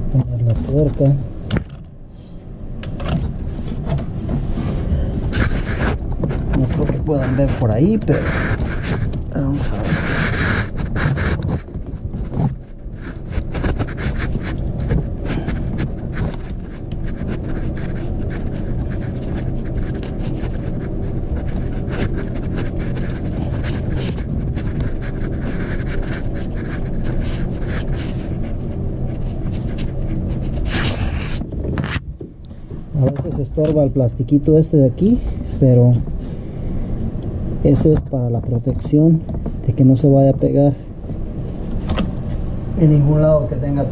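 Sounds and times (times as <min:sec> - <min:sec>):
steady low rumble: 0:00.0 - 0:43.9
heavy breathing: 0:04.7 - 0:05.6.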